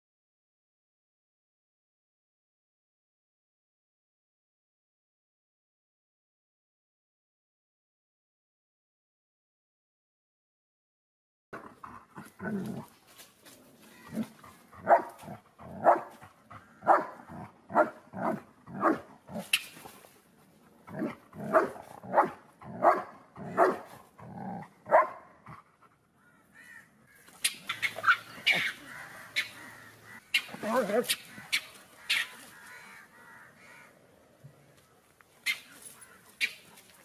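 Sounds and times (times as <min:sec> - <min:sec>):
dog barking: 0:14.8 - 0:16.2, 0:16.8 - 0:19.1, 0:21.0 - 0:23.9, 0:24.9 - 0:25.3.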